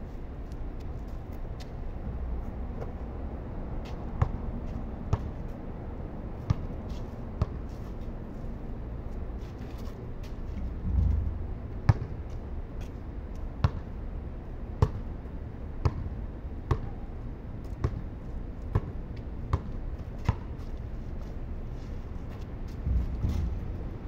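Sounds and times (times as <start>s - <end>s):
basketball bouncing on concrete: 10.9s - 12.4s, 13.6s - 13.9s, 14.8s - 15.0s, 15.8s - 16.1s, 16.7s - 16.9s, 17.8s - 18.1s, 18.7s - 20.5s.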